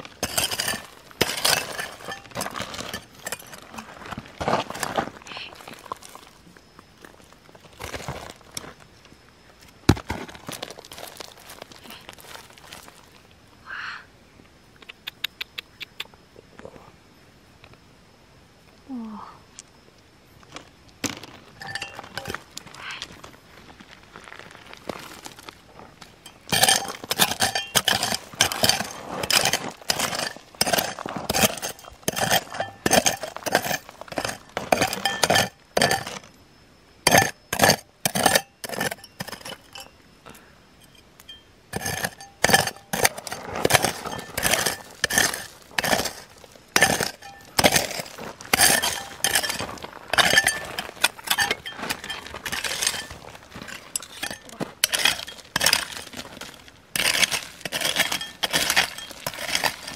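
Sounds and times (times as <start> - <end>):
hard objects clinking and knocking: 0.0 - 5.0, 21.0 - 22.5, 26.2 - 36.2, 37.0 - 40.0, 40.8 - 59.9.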